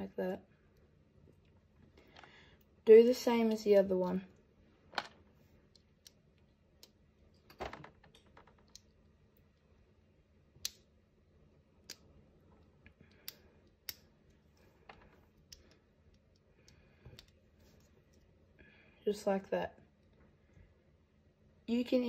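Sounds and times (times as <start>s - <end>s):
plastic bricks clicking together: 6.8s - 9.0s.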